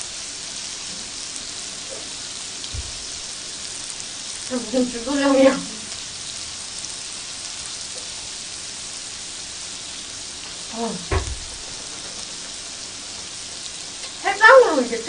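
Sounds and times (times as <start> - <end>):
food sizzling on a grill: 0.0 - 15.0
low thump: 2.7 - 3.3, 11.0 - 13.3.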